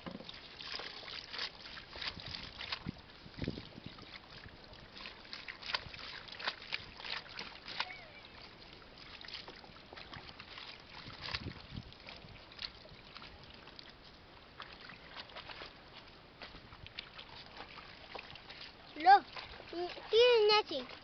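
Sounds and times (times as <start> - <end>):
water splashing in washbasin: 17.0 - 21.0.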